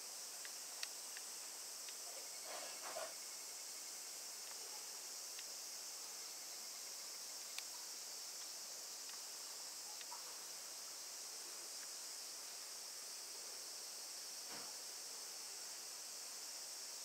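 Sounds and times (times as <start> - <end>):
insects chorus: 0.0 - 17.0
faint clicks: 0.4 - 2.0, 7.5 - 7.7, 8.4 - 9.3, 10.0 - 10.2.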